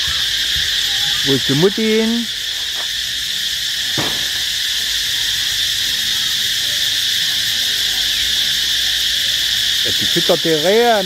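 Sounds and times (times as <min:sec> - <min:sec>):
high-pitched insect chorus: 0:00.0 - 0:11.0
faint knock: 0:04.0 - 0:04.3.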